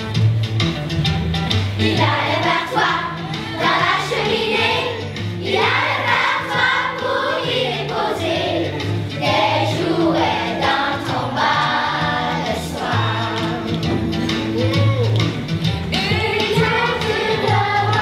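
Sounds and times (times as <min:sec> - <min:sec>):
musical accompaniment with bass: 0:00.0 - 0:18.0
children's choir singing: 0:01.8 - 0:14.4, 0:15.9 - 0:18.0.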